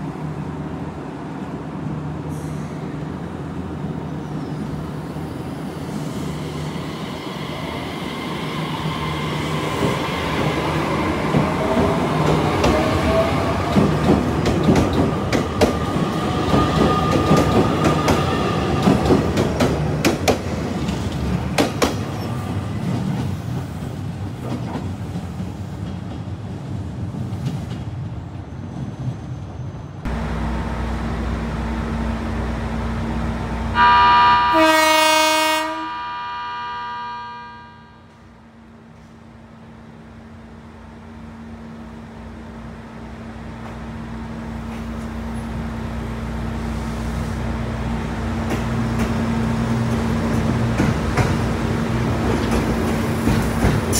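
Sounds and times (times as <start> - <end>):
two-tone train horn blast: 33.7 - 38.2
train wheels clicking over rail joints: 48.4 - 53.9.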